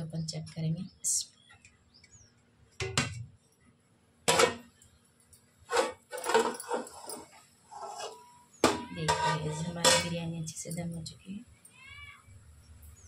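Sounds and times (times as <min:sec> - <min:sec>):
metal cookware clanking: 0:04.3 - 0:04.7, 0:05.7 - 0:10.9
pot lid rattle: 0:05.7 - 0:07.2.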